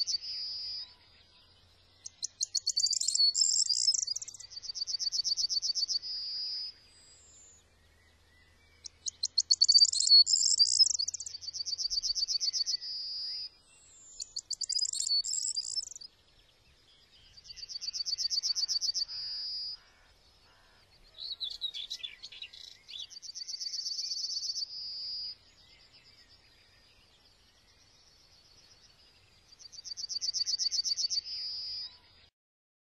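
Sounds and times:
songbird singing with buzzy trill: 0.0s - 32.3s.

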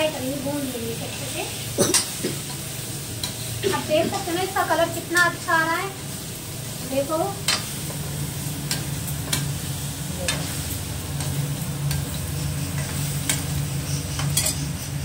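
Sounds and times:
potatoes sizzling in pan: 0.0s - 15.0s
steady low hum: 0.0s - 15.0s
metal spatula scraping pan: 12.0s - 15.0s.

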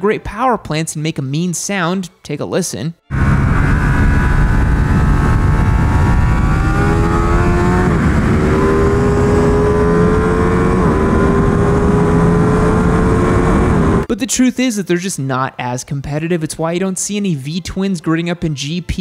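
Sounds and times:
motorcycle engine accelerating: 3.1s - 14.1s.

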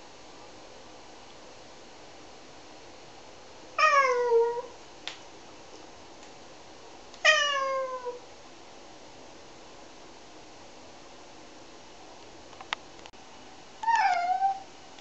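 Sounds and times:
cat meowing: 3.8s - 4.7s, 7.2s - 8.2s, 13.8s - 14.7s.

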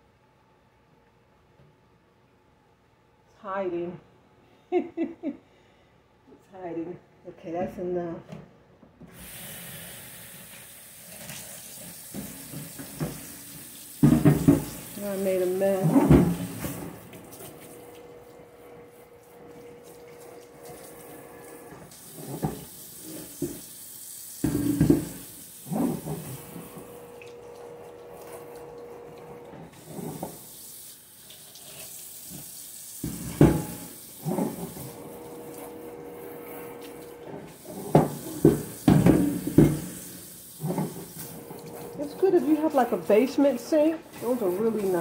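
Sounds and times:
tap water running into sink: 9.1s - 36.0s, 36.6s - 45.0s
clunks and knocks in sink: 12.1s - 13.3s, 14.0s - 14.8s, 15.7s - 17.0s, 22.2s - 23.6s, 24.4s - 26.6s, 33.0s - 34.8s, 37.6s - 40.0s, 40.6s - 41.1s.

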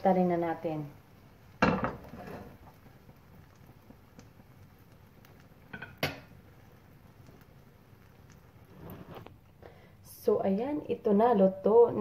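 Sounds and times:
frying pan clattering: 1.6s - 2.8s, 5.7s - 6.4s.

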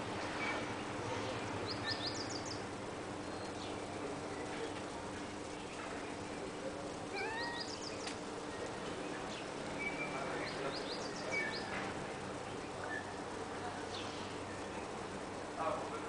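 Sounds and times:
small birds chirping: 0.3s - 15.9s
kitten mewing: 7.1s - 7.8s.

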